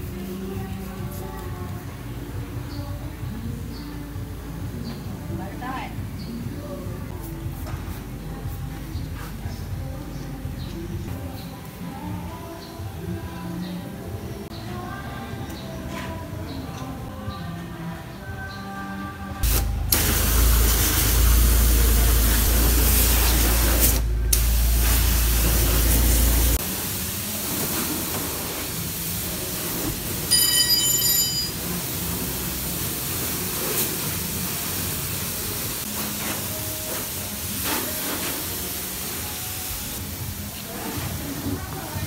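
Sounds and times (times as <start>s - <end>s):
deep rumble: 19.4s - 26.6s
pressure washer spraying water: 19.4s - 42.0s.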